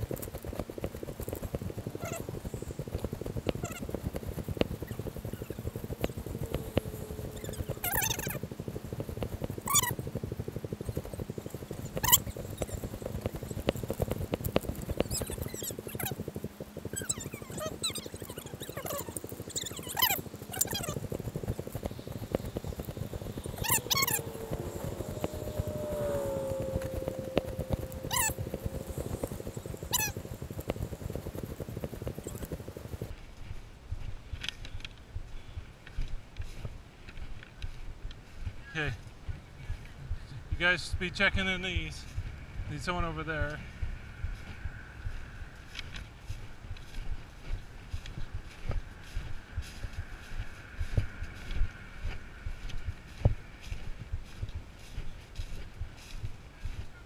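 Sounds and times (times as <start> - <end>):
dry stalks crackling and rustling: 0.0 - 57.0
steady hum: 0.0 - 57.0
short high squeaky calls: 6.4 - 8.4, 9.6 - 10.0, 15.1 - 16.2, 16.9 - 21.0, 22.0 - 27.0, 27.8 - 30.2
footsteps on dry straw: 45.6 - 56.9.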